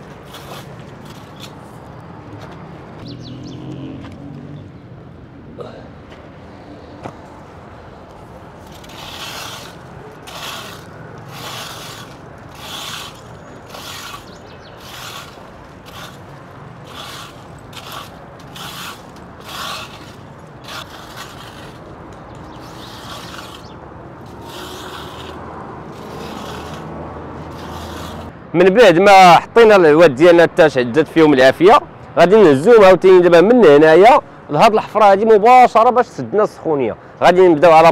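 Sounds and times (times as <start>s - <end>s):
metal rake scraping gravel: 0.0s - 1.7s, 8.6s - 28.3s.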